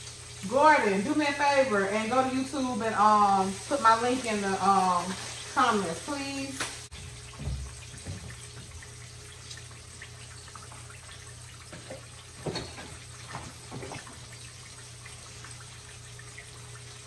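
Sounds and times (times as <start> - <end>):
fish frying in hot oil: 0.0 - 17.0
low steady hum: 0.0 - 17.0.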